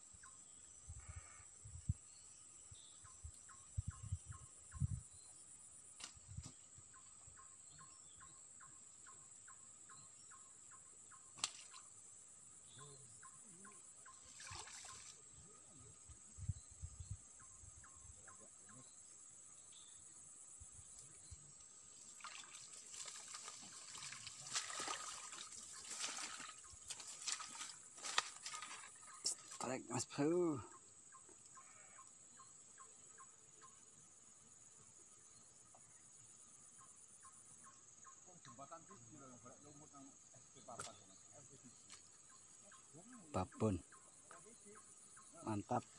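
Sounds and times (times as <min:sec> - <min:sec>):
insect chorus: 0:00.0 - 0:45.9
faint water splashing: 0:13.6 - 0:15.5, 0:21.8 - 0:29.6
grass rustling: 0:21.6 - 0:29.7.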